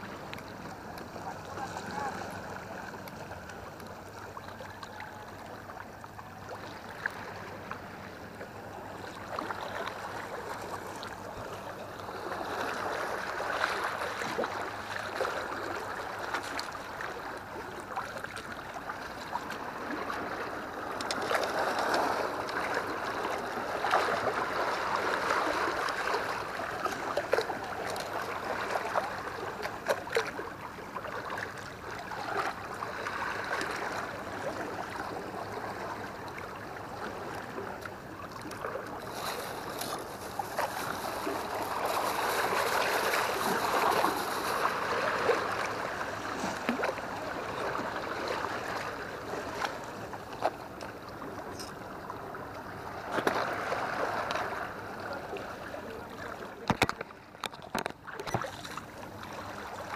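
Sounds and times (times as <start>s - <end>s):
sea water lapping against seawall: 0.0s - 59.9s
plastic bag crinkling: 39.0s - 44.7s
clicks and knocks handling tackle: 56.6s - 58.7s.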